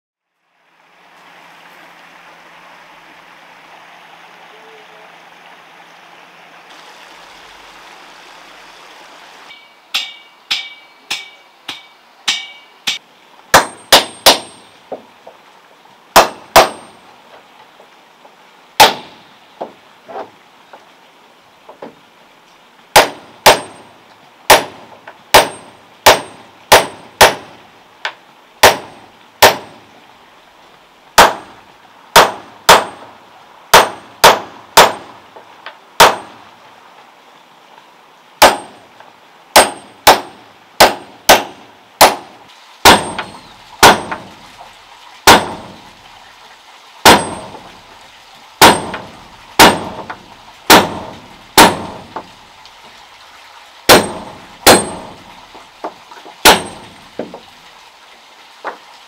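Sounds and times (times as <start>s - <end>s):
hammer striking nails into wood: 53.9s - 55.1s, 56.4s - 56.8s.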